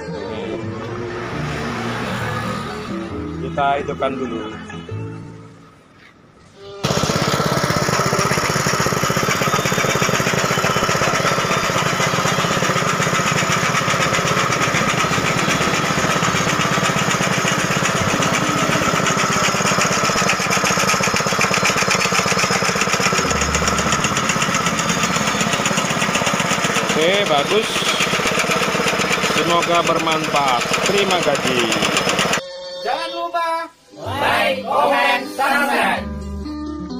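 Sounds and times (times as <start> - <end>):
meat grinder motor rattling: 6.8 - 32.4.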